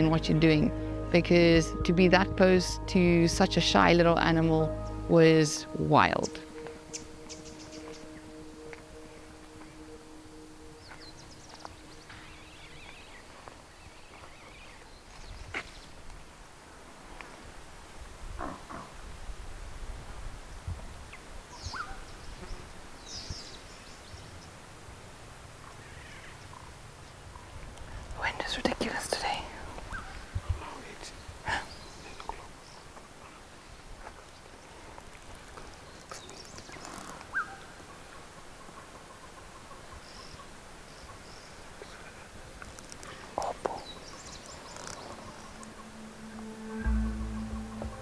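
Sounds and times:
low steady rumble: 0:00.0 - 0:06.8, 0:45.0 - 0:48.0
high bird chirps: 0:06.2 - 0:13.3
bird calls: 0:06.2 - 0:15.9, 0:43.0 - 0:48.0.

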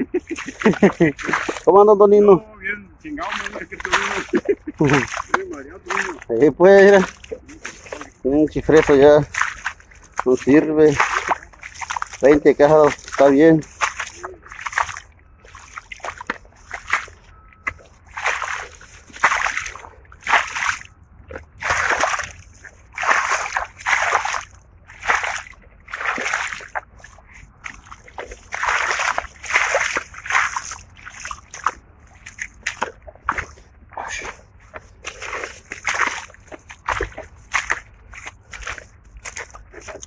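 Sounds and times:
footsteps squelching through mud: 0:00.0 - 0:40.0.

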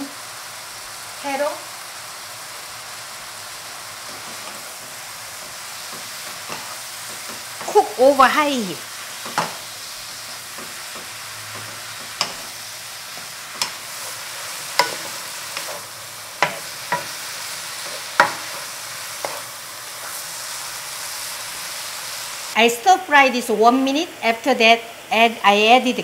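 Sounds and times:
vegetables sizzling in a pan: 0:00.0 - 0:26.0
wooden spoon knocking pan: 0:09.2 - 0:09.6, 0:10.5 - 0:12.5, 0:14.7 - 0:15.8, 0:16.4 - 0:17.2, 0:17.9 - 0:18.5.

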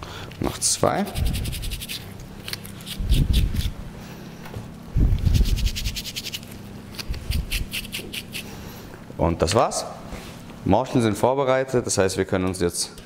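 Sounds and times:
brush scrubbing mushrooms: 0:00.8 - 0:02.1, 0:05.2 - 0:08.5.

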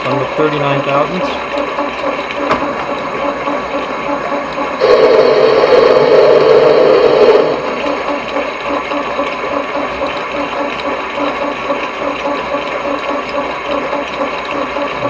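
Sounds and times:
lathe cutting thread: 0:04.7 - 0:08.4.

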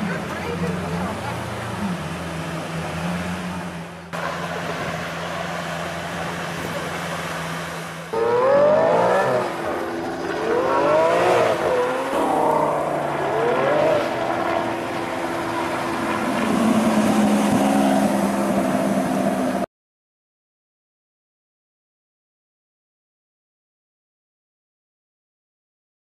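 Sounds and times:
supercar engine revving: 0:00.0 - 0:19.6.

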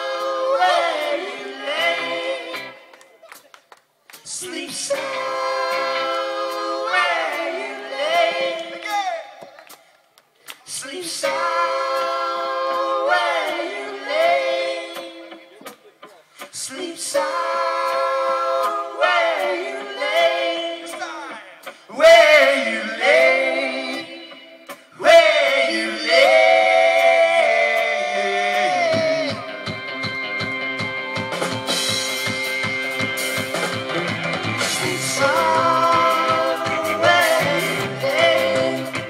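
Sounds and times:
group singing a cappella: 0:00.0 - 0:02.9, 0:04.3 - 0:09.1, 0:10.7 - 0:15.6, 0:16.5 - 0:29.4, 0:34.6 - 0:39.0.

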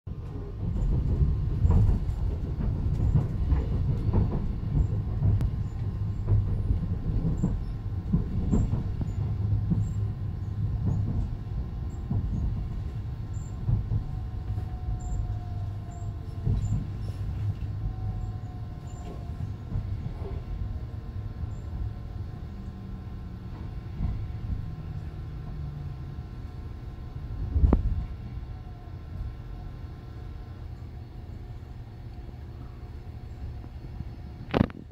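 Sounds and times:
train low rumble: 0:00.0 - 0:34.9
wheels clicking on track: 0:00.1 - 0:26.7.

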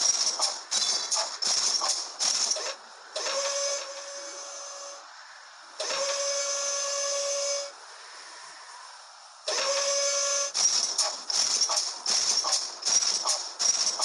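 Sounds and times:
whistle-like tone over hiss: 0:02.5 - 0:05.1, 0:05.8 - 0:11.2.

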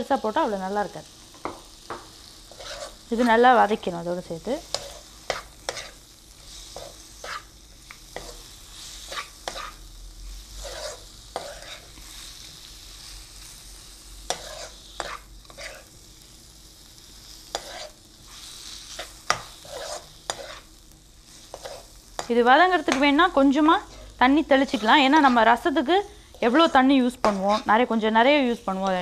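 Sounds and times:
chicken sizzling in oil: 0:00.0 - 0:29.0
spatula scraping a pan: 0:01.9 - 0:03.4, 0:04.6 - 0:07.5, 0:08.1 - 0:12.5, 0:14.3 - 0:16.0, 0:17.2 - 0:28.0.

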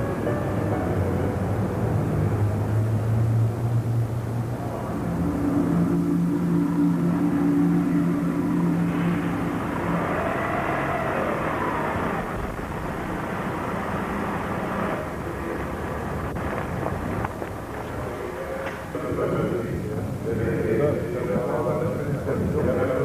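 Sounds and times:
vehicle engine running: 0:00.0 - 0:18.4.

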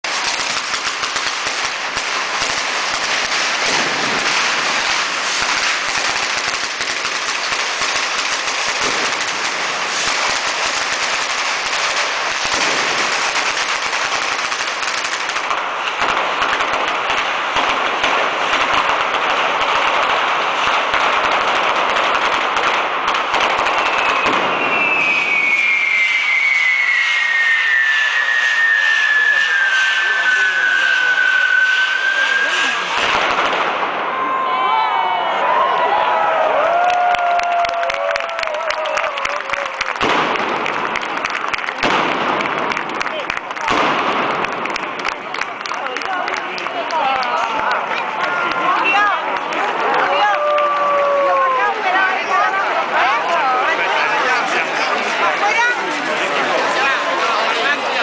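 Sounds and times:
fireworks cracking and banging: 0:00.0 - 0:58.0
falling firework whistle: 0:23.1 - 0:35.1.

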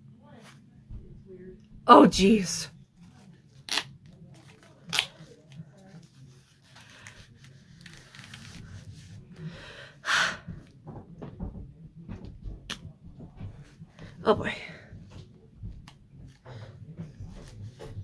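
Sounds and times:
headset rustling and scraping: 0:03.0 - 0:09.4.

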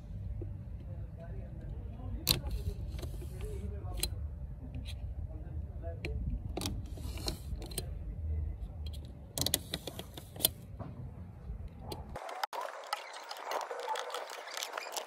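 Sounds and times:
steady low rumble: 0:00.0 - 0:09.4, 0:10.5 - 0:12.2.

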